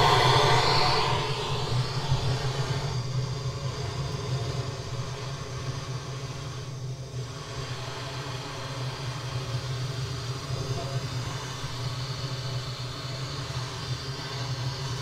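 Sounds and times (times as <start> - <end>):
blowtorch flame hissing: 0.0 - 3.0.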